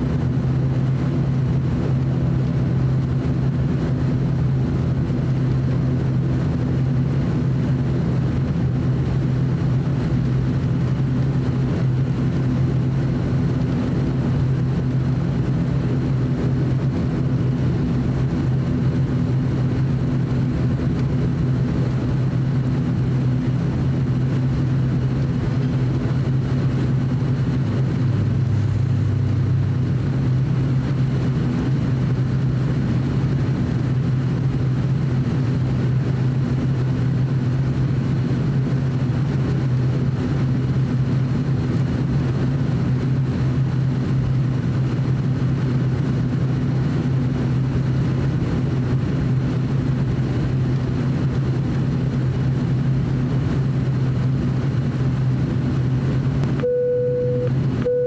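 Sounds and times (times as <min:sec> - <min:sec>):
lower hum: 0:00.0 - 0:58.0
turboprop engines droning: 0:00.0 - 0:58.0.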